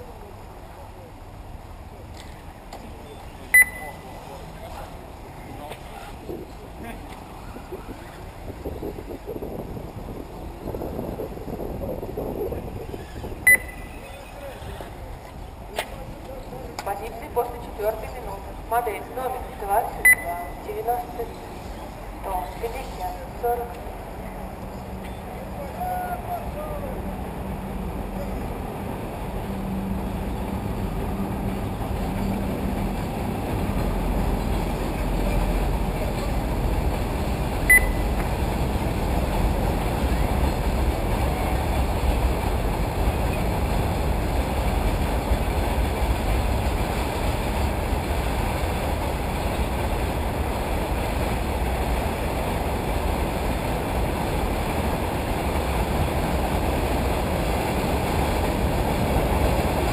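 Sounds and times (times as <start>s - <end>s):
short high beep: 3.5s - 4.2s, 13.5s - 14.1s, 20.0s - 20.7s, 37.7s - 38.1s
wind on microphone: 5.4s - 14.1s.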